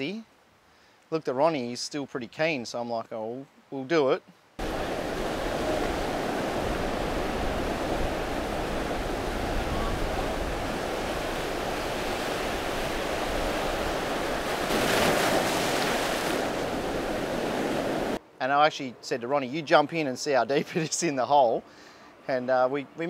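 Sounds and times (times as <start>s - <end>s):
waves washing over rocky reef: 4.6s - 18.2s.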